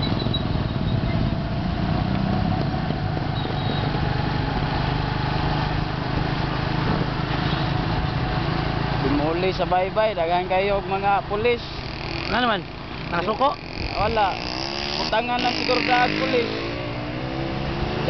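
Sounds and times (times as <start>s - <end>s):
wind and road noise: 0.0s - 18.0s
small motorcycle engine running: 11.6s - 17.0s.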